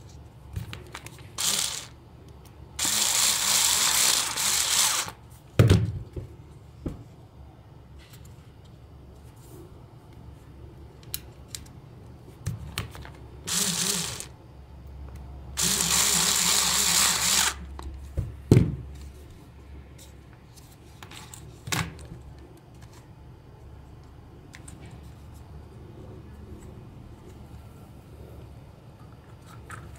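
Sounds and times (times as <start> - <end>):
electric screwdriver whirring: 1.4 - 2.0, 2.8 - 5.2, 13.5 - 14.3, 15.6 - 17.6.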